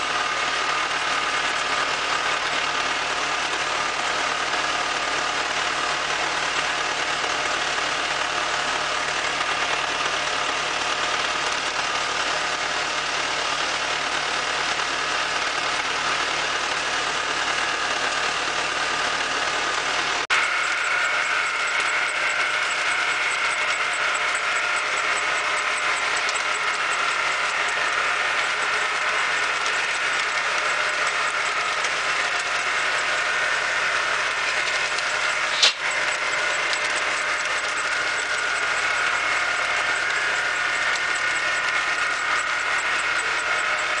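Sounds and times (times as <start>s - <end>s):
harvester machine running: 0.0s - 44.0s
sharp click: 35.5s - 36.0s.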